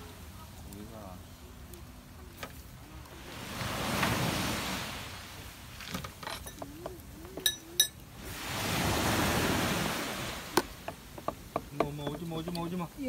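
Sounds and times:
small waves washing on shore: 2.5s - 13.0s
metal tableware clinks: 6.2s - 6.6s, 7.4s - 8.0s.

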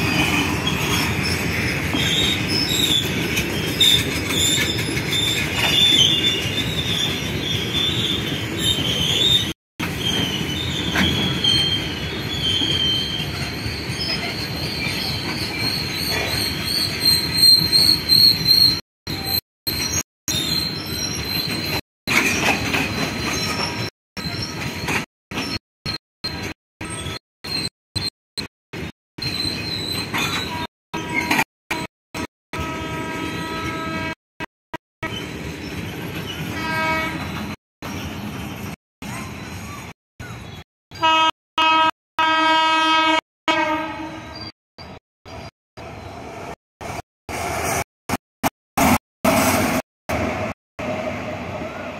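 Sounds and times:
freight wagons rolling on track: 0.0s - 9.4s
train wheels rumbling on rails: 0.0s - 28.1s
high wheel squeals: 0.1s - 28.1s, 29.2s - 31.5s
train horn: 32.6s - 34.2s, 36.6s - 37.3s, 41.0s - 44.3s.

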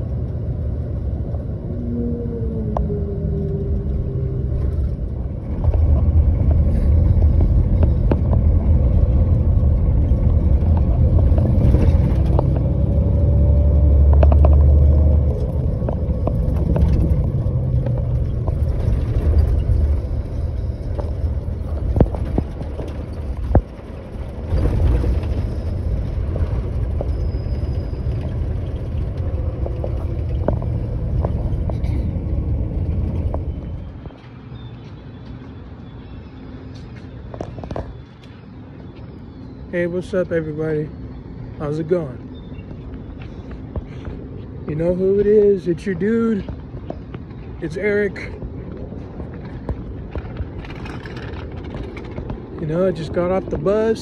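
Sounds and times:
motor vehicle rumble: 0.0s - 54.0s
sharp knocks and rattles: 48.7s - 53.5s.

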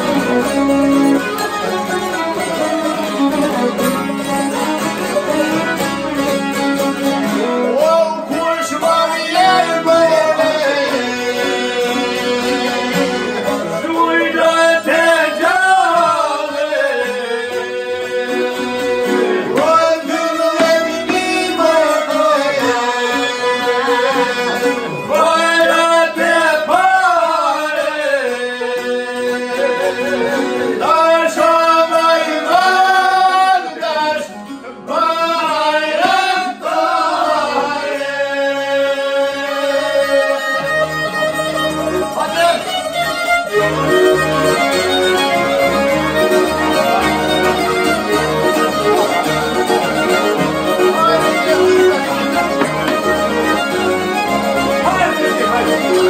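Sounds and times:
plucked lutes: 0.0s - 56.0s
violin: 0.0s - 56.0s
man singing: 7.3s - 40.7s.

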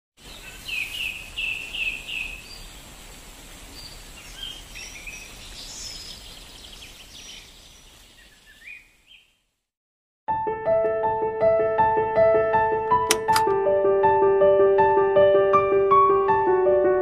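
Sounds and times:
birds chirping: 0.2s - 9.4s
forest ambience hiss: 0.2s - 9.6s.

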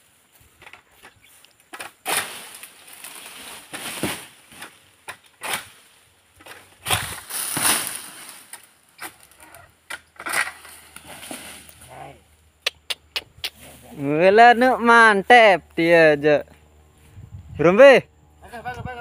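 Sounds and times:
palm fronds rustling: 0.0s - 12.4s
pole sickle cutting fronds: 1.0s - 11.9s.

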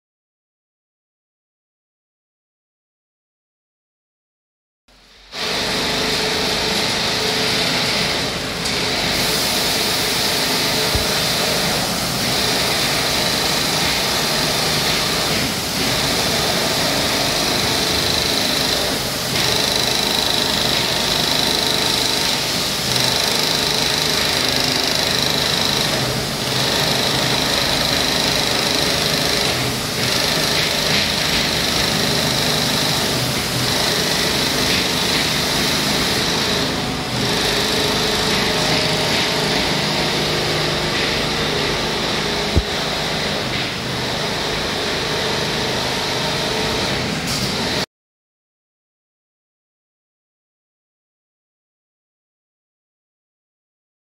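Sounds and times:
quilting machine stitching: 5.4s - 47.8s.

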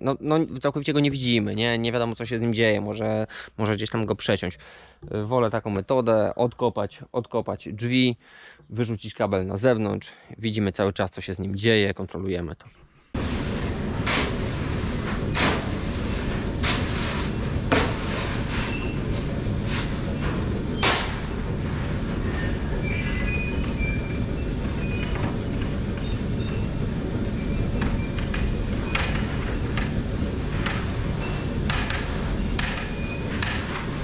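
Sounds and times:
machinery rumble: 13.2s - 34.0s
sharp metallic knocks: 30.5s - 33.9s.

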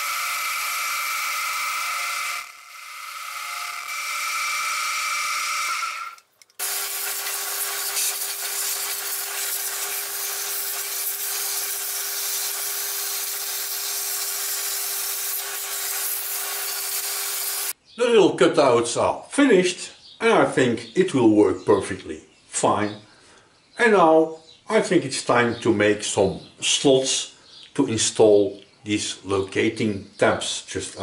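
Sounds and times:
milling machine whine: 0.0s - 17.7s
vacuum cleaner hose hissing: 6.6s - 17.7s.

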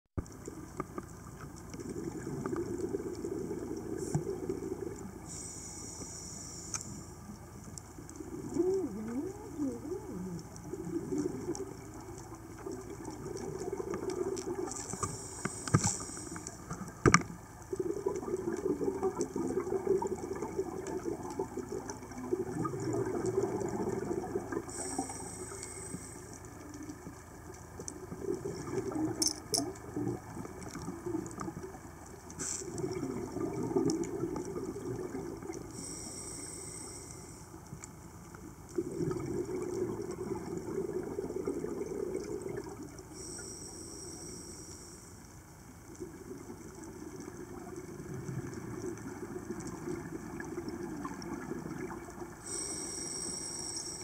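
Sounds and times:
regulator inhale hiss: 5.2s - 7.2s, 14.8s - 16.8s, 24.7s - 26.5s, 32.4s - 32.7s, 35.7s - 37.6s, 43.1s - 45.4s, 52.4s - 54.0s
gurgling exhaust bubbles: 17.7s - 25.4s, 32.6s - 35.8s, 38.7s - 43.2s.

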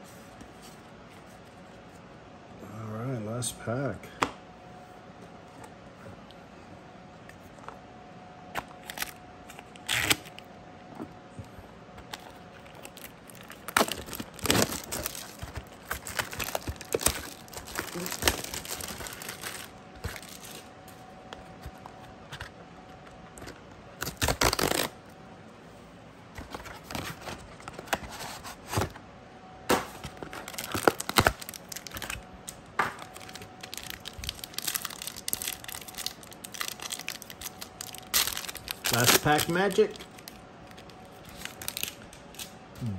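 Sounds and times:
shrink-wrap crinkling and tearing: 8.6s - 10.5s, 12.0s - 20.7s, 23.4s - 25.0s, 30.0s - 42.5s.

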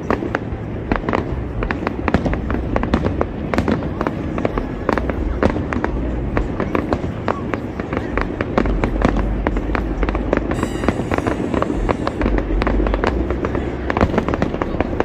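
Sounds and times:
fireworks bangs and crackles: 0.0s - 15.0s
low rumble: 0.0s - 15.0s.

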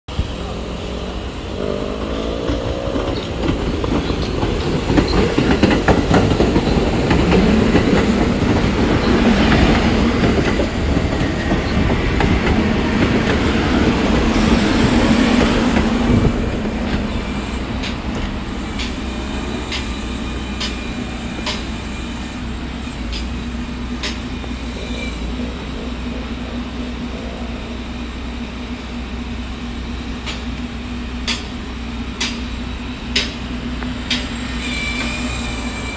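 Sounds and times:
subway train rumbling past: 0.1s - 35.9s
wheels clacking over rail joints: 1.2s - 21.9s, 22.5s - 27.1s, 30.1s - 35.6s
wheels squealing in a curve: 34.3s - 35.9s.

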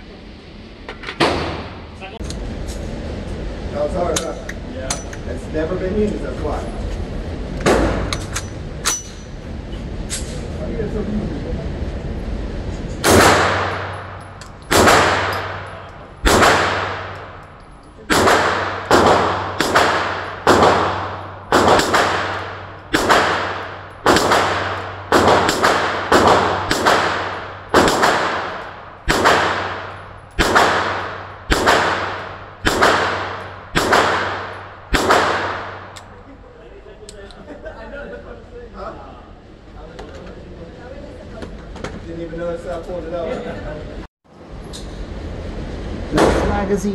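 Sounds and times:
steady low hum: 0.0s - 46.9s
pistol shots echoing indoors: 13.0s - 17.4s, 18.1s - 36.0s.

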